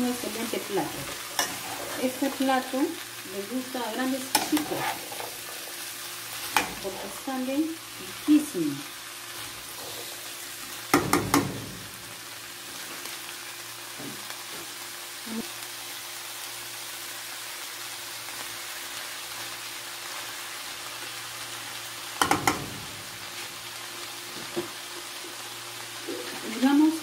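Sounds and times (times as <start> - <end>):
vegetables sizzling in a frying pan: 0.0 - 27.0
spoon knocking against pan: 10.9 - 11.7, 22.2 - 22.8.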